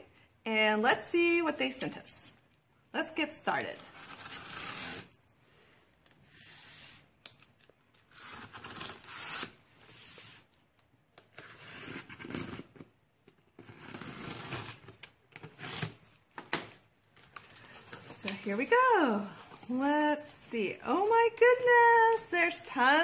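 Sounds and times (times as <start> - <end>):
packing tape ripping: 7.2 - 9.6.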